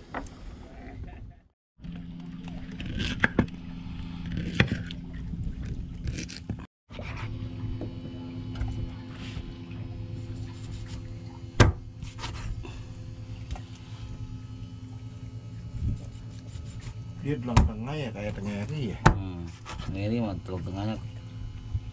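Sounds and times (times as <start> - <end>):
boat engine humming: 1.8 - 21.9
knocks and scrapes on boat: 2.5 - 12.6, 15.6 - 20.1.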